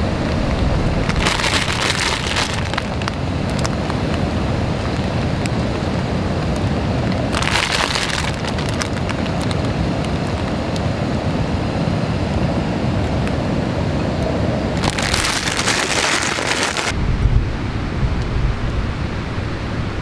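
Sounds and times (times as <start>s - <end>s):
crinkling rustle: 1.0s - 10.5s, 14.8s - 17.0s
steady drizzle: 1.0s - 10.6s, 14.8s - 17.0s
low even rumble: 14.8s - 20.0s.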